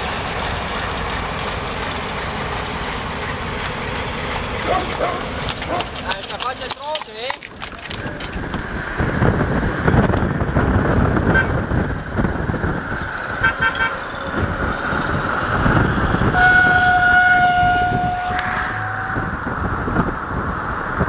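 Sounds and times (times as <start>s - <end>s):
diesel locomotive running: 0.0s - 21.0s
locomotive air horn blast: 13.4s - 14.0s, 16.3s - 19.5s.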